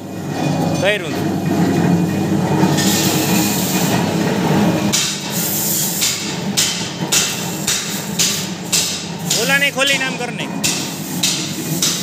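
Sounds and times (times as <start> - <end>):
workshop machinery hum: 0.0 - 12.0
sharp knocks: 6.0 - 12.0.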